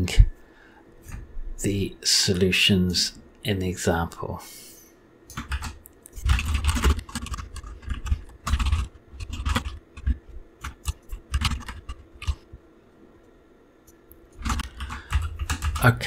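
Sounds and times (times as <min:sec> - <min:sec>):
typing on a computer keyboard: 0:05.3 - 0:12.4, 0:14.4 - 0:16.0.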